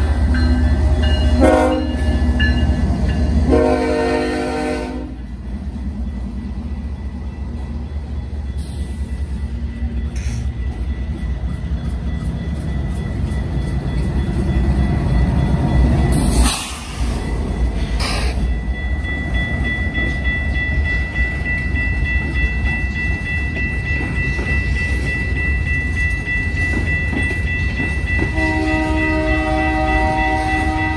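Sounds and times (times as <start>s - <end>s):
locomotive multi-chime horn: 0.0s - 5.3s, 24.3s - 30.9s
freight train rumbling on rails: 0.0s - 30.9s.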